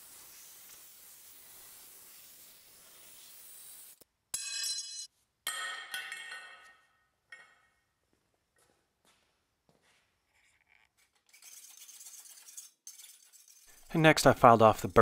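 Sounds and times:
steady hiss: 0.0 - 4.0.

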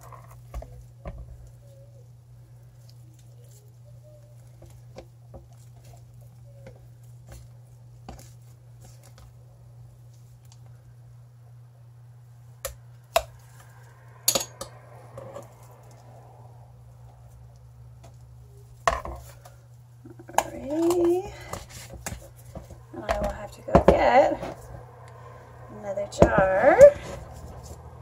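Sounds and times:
spoon squelching soap paste: 0.0 - 11.0
steady low hum: 0.0 - 28.0.

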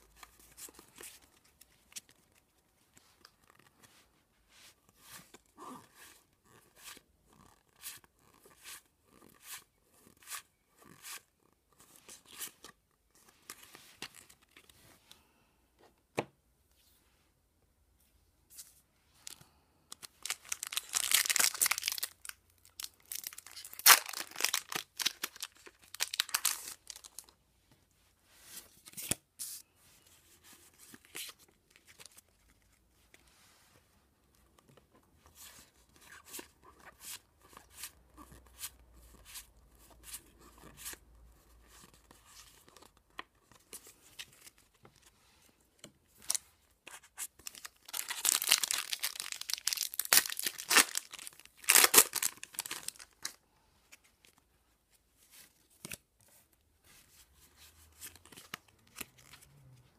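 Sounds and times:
card pack wrappers tearing: 20.2 - 27.3, 47.4 - 53.3.

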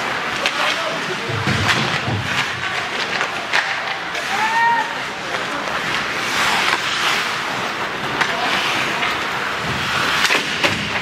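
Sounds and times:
crowd noise: 0.0 - 11.0
hockey sticks and puck clacking: 0.0 - 11.0
skates hissing on ice: 3.3 - 11.0.

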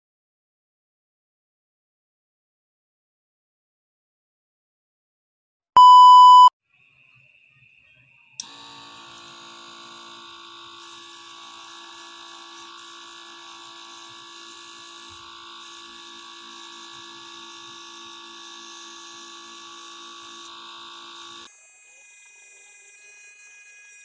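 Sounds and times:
electric motor whine: 8.4 - 24.0.

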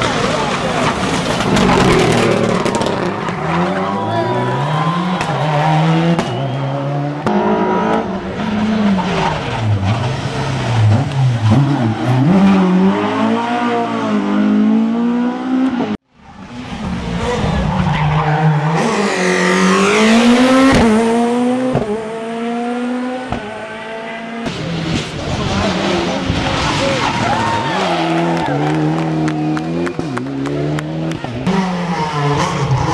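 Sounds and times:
rally car engines revving: 0.0 - 32.9.

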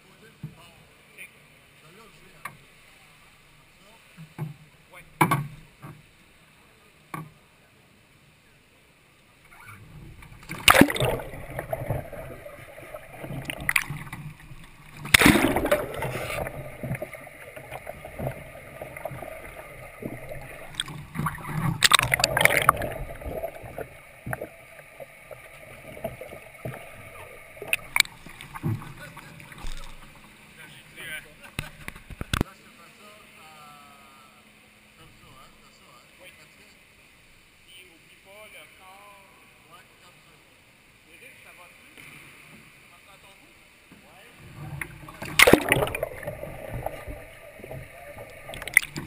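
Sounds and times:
water splashing: 9.6 - 32.4, 44.4 - 49.0
loud surges of splashing: 10.5 - 30.1, 45.2 - 49.0.

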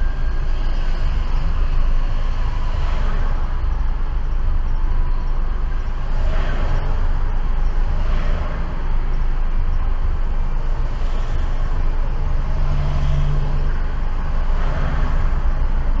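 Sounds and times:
low traffic rumble: 0.0 - 16.0
vehicles passing: 0.0 - 16.0.

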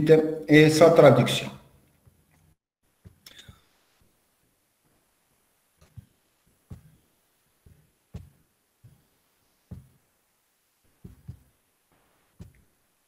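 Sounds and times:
soft low thudding taps: 5.8 - 9.1, 9.7 - 10.1, 10.9 - 11.6, 12.3 - 12.8.

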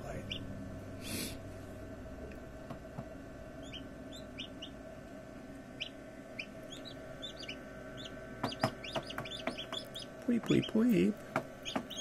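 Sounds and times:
steady low hum: 0.0 - 12.0
chicks peeping: 0.1 - 0.5, 3.5 - 4.8, 5.6 - 12.0.

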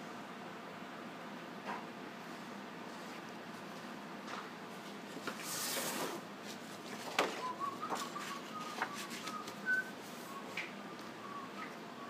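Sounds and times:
paper rustling: 5.2 - 9.8.

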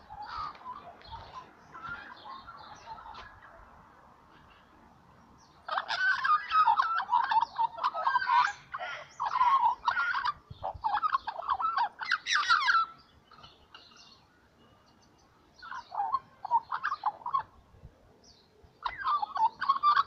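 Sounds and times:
young magpie warbling: 0.0 - 3.6, 5.6 - 13.0, 15.6 - 17.6, 18.8 - 20.0.

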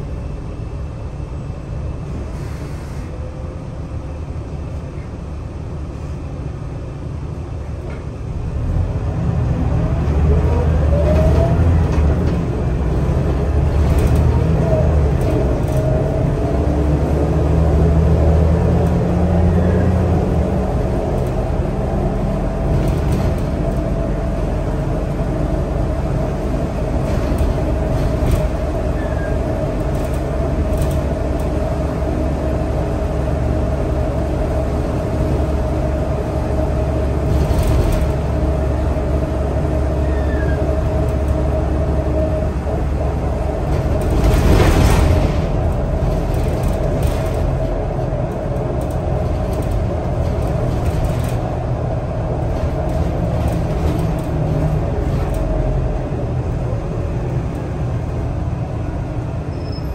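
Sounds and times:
bus engine rumble: 0.0 - 59.9.

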